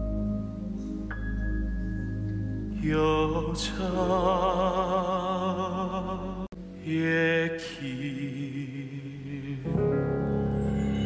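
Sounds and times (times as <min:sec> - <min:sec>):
man singing with vibrato: 0:02.8 - 0:10.0.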